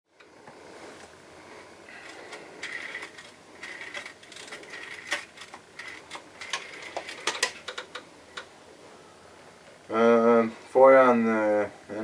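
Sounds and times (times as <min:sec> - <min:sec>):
rotary telephone dial clicking: 0:02.0 - 0:08.5.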